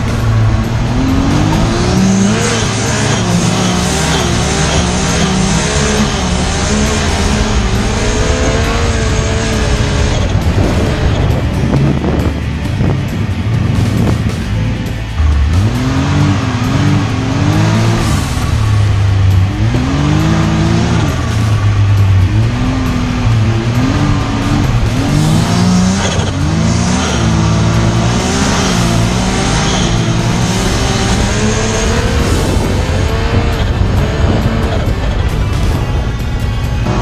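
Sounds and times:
engine revving: 0.0 - 37.0.

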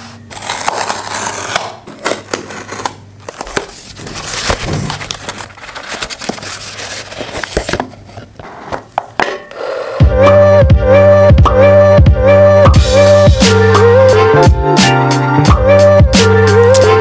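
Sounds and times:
cardboard scraping and rustling: 0.0 - 9.1.

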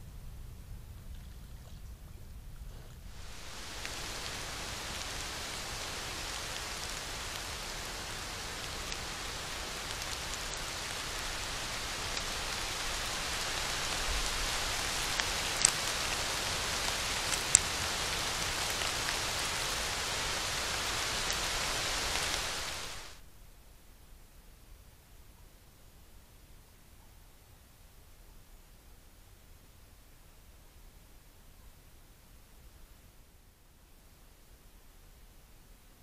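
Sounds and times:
rain falling: 3.1 - 23.3.

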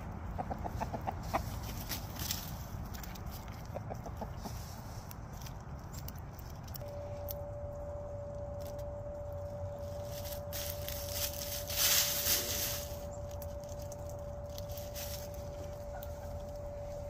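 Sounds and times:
dry leaves rustling and crackling: 0.0 - 17.0
steady low rumble: 0.0 - 17.0
steady high whine: 6.7 - 17.0.

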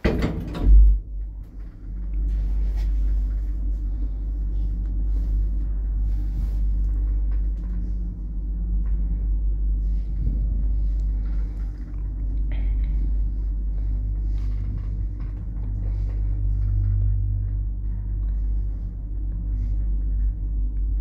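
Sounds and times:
lift door shutting with thud: 0.0 - 1.2
lift machinery rumble and hum: 0.0 - 21.0.

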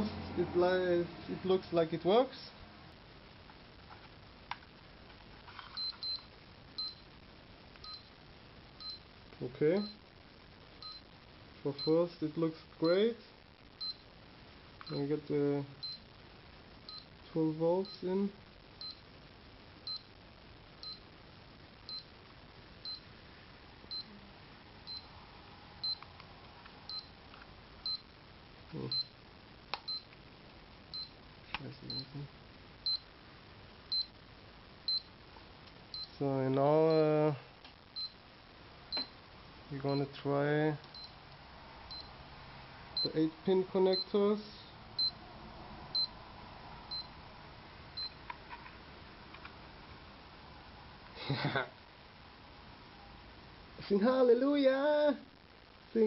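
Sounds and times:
short high-pitched beeps: 5.7 - 7.1, 7.8 - 8.1, 8.8 - 9.0, 10.8 - 11.1, 13.8 - 14.0, 15.8 - 16.0, 16.9 - 17.1, 18.8 - 19.0, 19.8 - 20.1, 20.8 - 21.0, 21.9 - 22.1, 22.8 - 23.1, 24.9 - 25.1, 25.8 - 26.1, 26.9 - 27.2, 27.8 - 28.0, 28.9 - 29.1, 29.9 - 30.1, 30.9 - 31.2, 31.9 - 32.1, 32.8 - 33.1, 33.9 - 34.2, 34.9 - 35.1, 35.9 - 36.2, 38.0 - 38.2, 40.9 - 41.2, 41.9 - 42.1, 43.0 - 43.2, 45.0 - 45.2, 46.0 - 46.2, 46.9 - 47.1.

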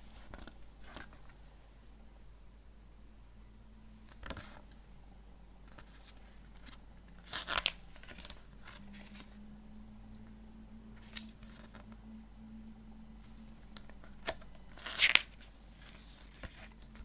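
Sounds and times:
paper pages rustling and turning: 0.0 - 1.4, 4.1 - 4.8, 5.6 - 9.4, 11.0 - 12.0, 13.2 - 17.0
faint steady hum: 0.0 - 17.0.

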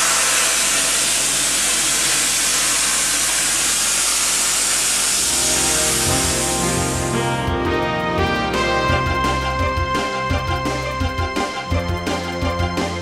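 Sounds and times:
plasma cutter hissing: 0.0 - 7.1
music: 5.2 - 13.0.

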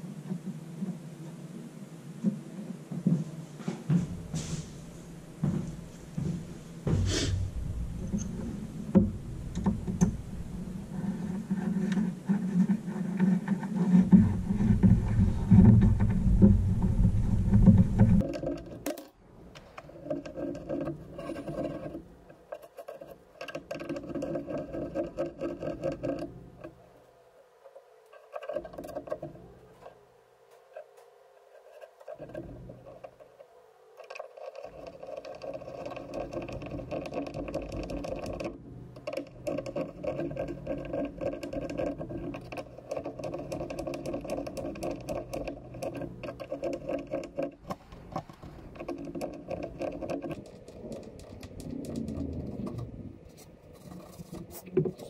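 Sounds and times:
steady hum: 0.0 - 19.8
awl scratching wood: 6.7 - 19.0, 19.9 - 26.8, 27.4 - 55.0.

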